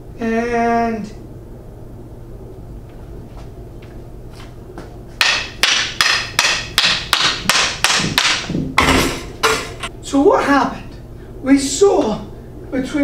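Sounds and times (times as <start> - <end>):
wooden stick knocking bowling ball: 5.2 - 9.8.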